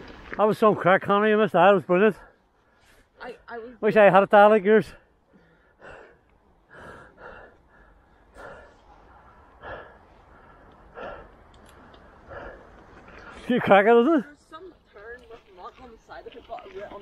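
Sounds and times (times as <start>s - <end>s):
cyclist breathing hard: 2.1s - 3.2s, 4.8s - 13.5s.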